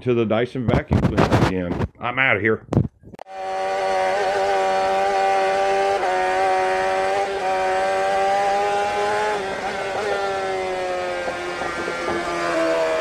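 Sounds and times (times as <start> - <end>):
engine running at high revs: 3.3 - 13.0.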